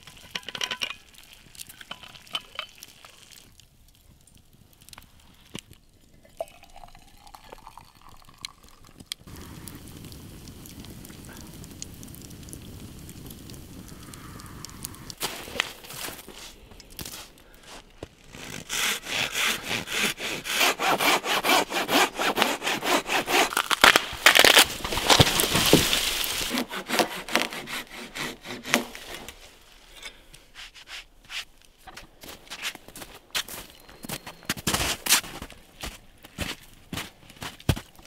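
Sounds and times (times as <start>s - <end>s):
hand saw cutting wood: 18.3s - 24.0s, 25.0s - 29.4s.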